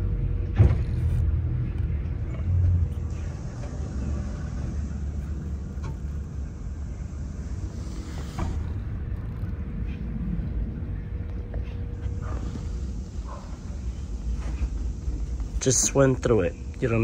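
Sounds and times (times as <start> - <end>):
steady hiss: 3.1 - 9.2, 11.7 - 17.0.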